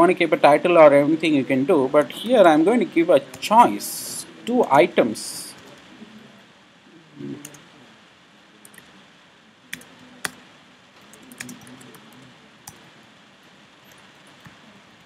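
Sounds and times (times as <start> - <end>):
keyboard keystrokes: 11.1 - 12.0.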